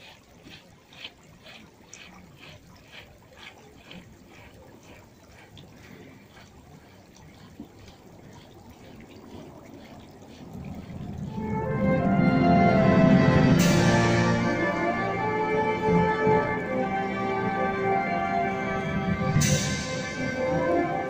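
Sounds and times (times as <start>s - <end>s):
military band playing: 11.4s - 21.0s.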